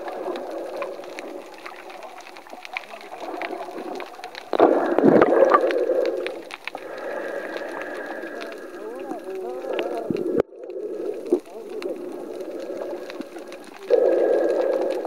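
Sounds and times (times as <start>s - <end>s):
rush of churning water: 0.0s - 10.4s
faint crackles: 0.0s - 15.0s
muffled underwater noise: 0.0s - 15.0s.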